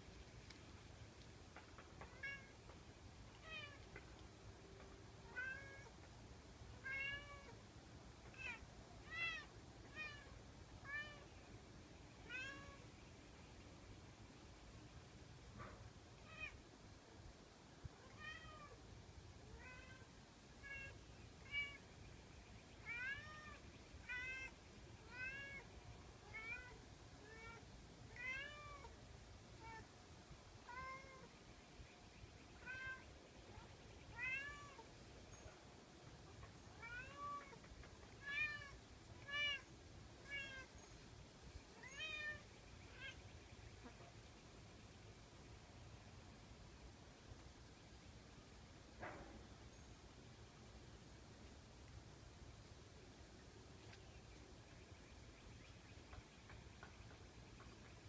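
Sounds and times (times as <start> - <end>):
cat meowing: 34.2 - 34.8.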